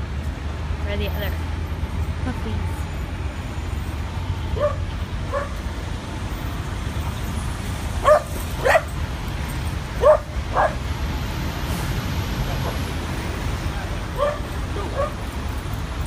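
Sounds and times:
low rumble of road traffic: 0.0s - 16.0s
dog barking: 4.6s - 5.6s, 8.0s - 9.0s, 10.0s - 10.8s, 14.2s - 15.2s.

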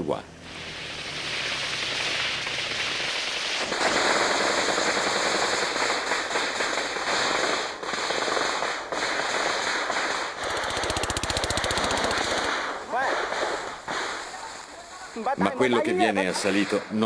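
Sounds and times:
rising rush of noise: 0.3s - 3.8s
automatic gunfire: 1.8s - 14.3s.

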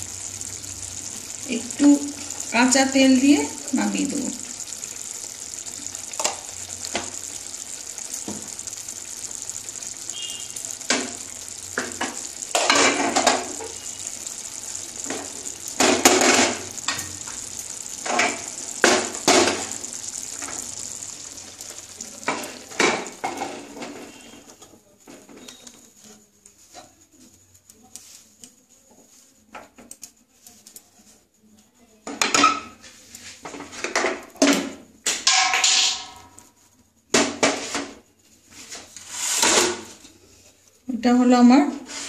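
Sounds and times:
gravy sizzling in a pan: 0.0s - 30.0s, 30.6s - 42.0s
wooden spatula scraping pan: 37.4s - 40.6s, 41.8s - 42.0s.

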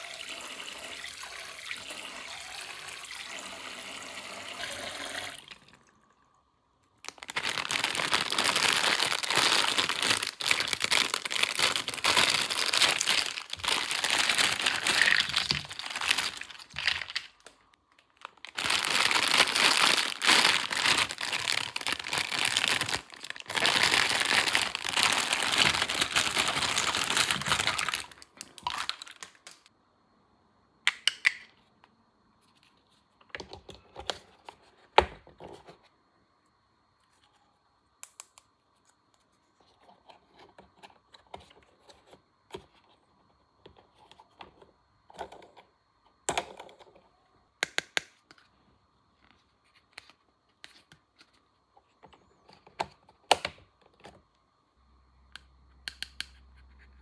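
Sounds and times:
plastic packaging crinkling: 6.9s - 29.7s.

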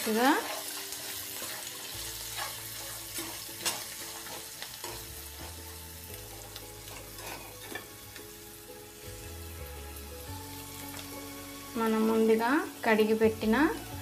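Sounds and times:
gentle frying sizzle: 0.0s - 14.0s
utensil scraping a pan: 0.1s - 8.0s.

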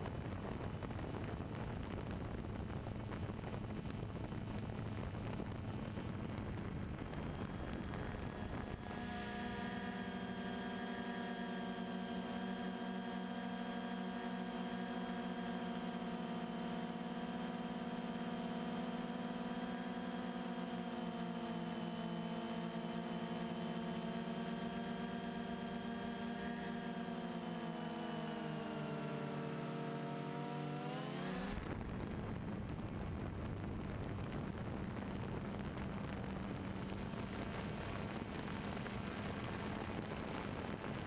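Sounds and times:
drone propellers humming: 1.6s - 41.0s
rush of noise: 31.0s - 41.0s.

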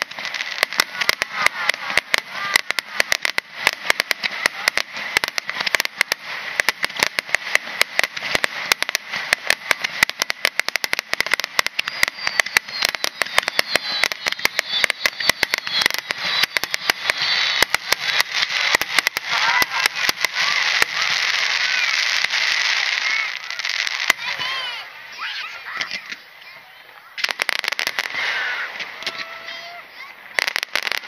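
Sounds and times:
crackle of sparks: 0.0s - 24.7s, 27.2s - 31.0s
fireworks bursting: 0.0s - 31.0s
fireworks whistles: 0.0s - 31.0s.

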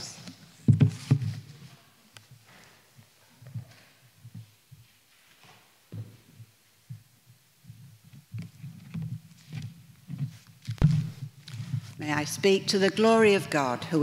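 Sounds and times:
muffled low thumps: 10.8s - 11.2s.

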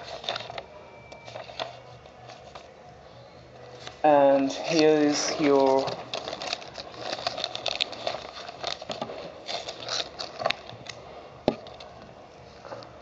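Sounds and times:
paper rustling and crinkling: 0.0s - 2.8s, 3.6s - 13.0s.

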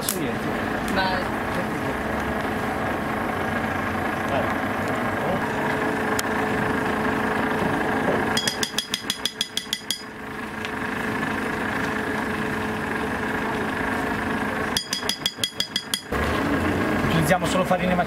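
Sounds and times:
mechanical hum: 0.0s - 18.0s
rapid metallic tapping: 8.4s - 10.1s, 14.8s - 16.1s.

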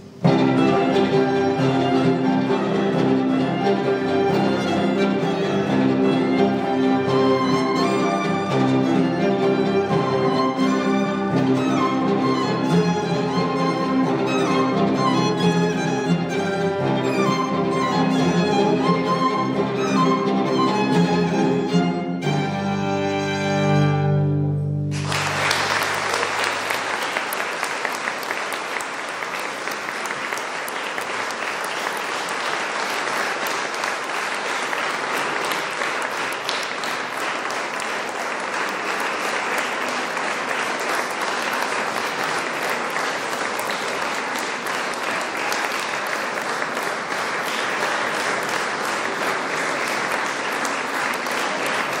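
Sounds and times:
audience applauding: 0.0s - 21.9s, 24.9s - 52.0s
violins and cello chord: 0.0s - 26.4s.

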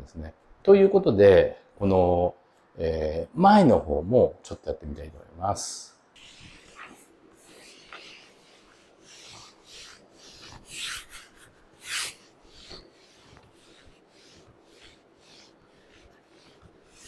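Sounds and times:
massage ball rubbing on exercise mat: 6.2s - 17.0s.

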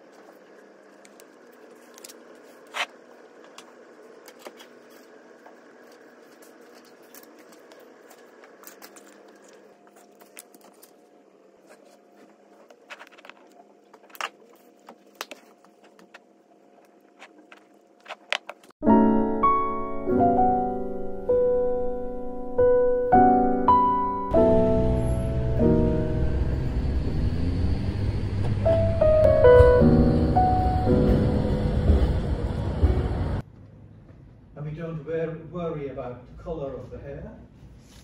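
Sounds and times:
low room hum: 0.0s - 18.8s.

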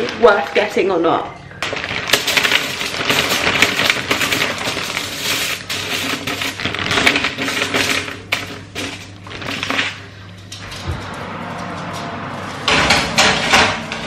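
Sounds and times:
fries clattering onto foil: 1.6s - 10.1s
plastic bag crinkling: 1.6s - 10.3s.

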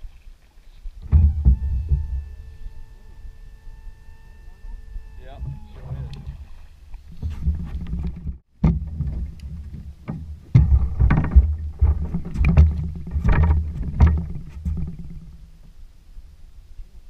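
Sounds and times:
water slapping against boat hull: 5.4s - 15.3s.

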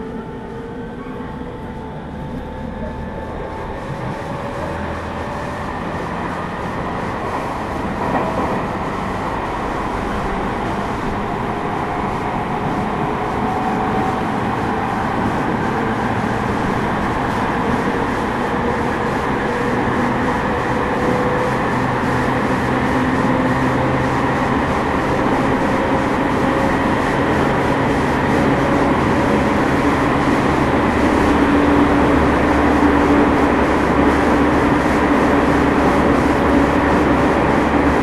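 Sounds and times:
train wheels rumbling on rails: 0.0s - 38.0s
air conditioning running: 8.6s - 38.0s.

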